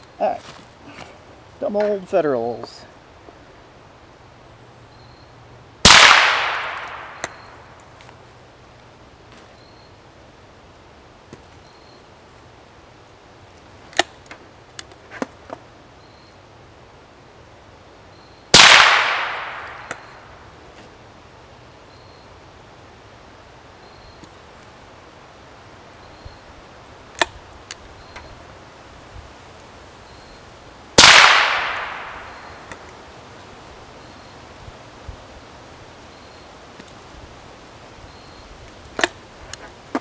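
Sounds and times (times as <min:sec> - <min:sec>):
rifle shots echoing: 0:05.8 - 0:07.8, 0:18.5 - 0:20.4, 0:31.0 - 0:32.8.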